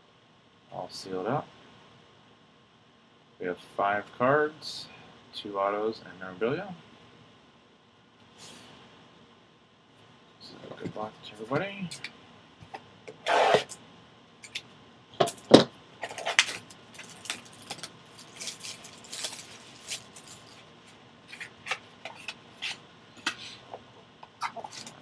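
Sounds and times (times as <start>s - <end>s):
loud plastic rip: 13.2s - 13.7s
plastic wrap crinkling and tearing: 16.0s - 20.7s.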